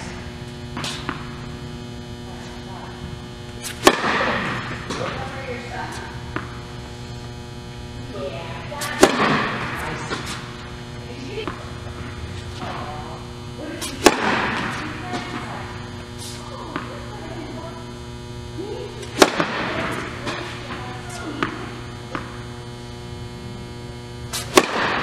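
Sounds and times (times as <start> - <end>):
steady electrical hum: 0.0 - 25.0
tennis ball bouncing on hard court: 0.8 - 1.4, 3.6 - 6.7, 8.8 - 10.4, 11.4 - 13.0, 13.8 - 15.6, 19.0 - 22.4, 24.4 - 25.0
tennis ball cracking off racket: 3.6 - 5.1, 13.8 - 15.3, 19.0 - 20.5, 24.3 - 25.0.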